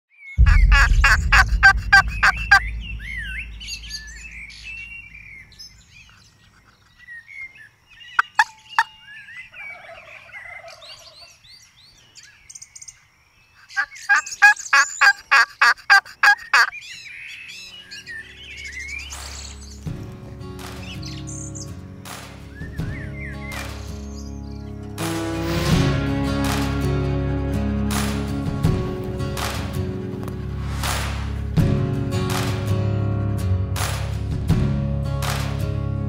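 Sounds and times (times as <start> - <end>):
music: 0.4 - 5.0, 17.9 - 36.0
turkey calls: 0.5 - 2.6, 8.1 - 11.4, 13.6 - 17.7
small songbirds chirping: 1.8 - 15.4, 16.2 - 25.0.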